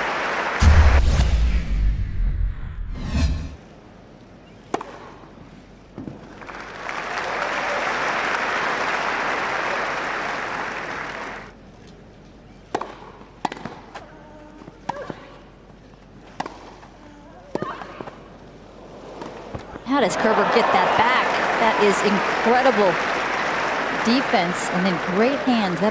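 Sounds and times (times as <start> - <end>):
crowd applauding: 0.0 - 0.7, 6.3 - 11.5, 20.0 - 25.9.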